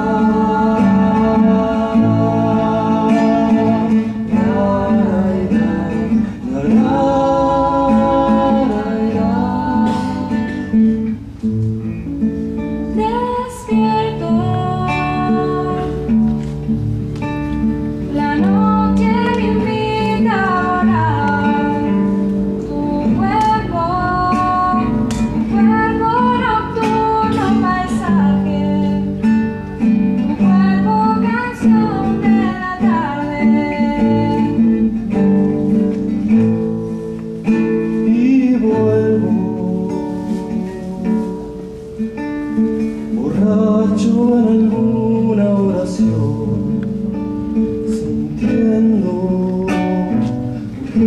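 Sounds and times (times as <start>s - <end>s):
woman singing slow melody: 0.0s - 11.0s, 12.8s - 16.4s, 18.1s - 29.3s, 30.2s - 36.4s
acoustic guitar: 0.0s - 51.0s.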